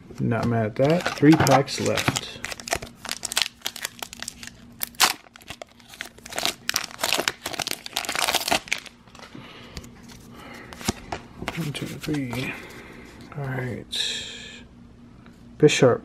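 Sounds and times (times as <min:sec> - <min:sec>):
foil wrapper crinkling and tearing: 0:00.8 - 0:09.3.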